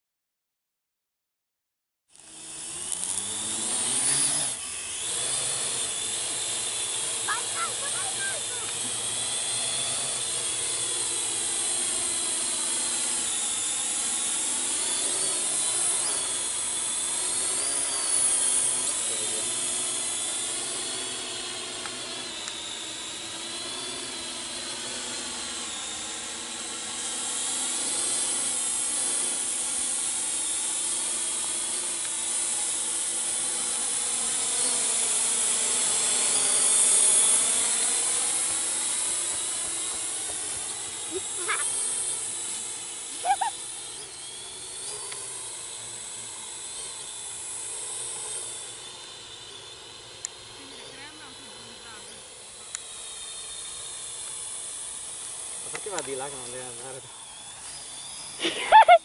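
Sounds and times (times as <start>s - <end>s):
drone propellers whining: 2.1s - 59.0s.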